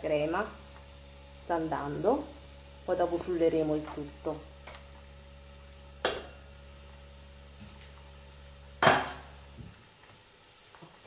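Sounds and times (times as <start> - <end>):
low background hum: 0.0 - 11.0
metal pot lid clanking: 6.0 - 6.3.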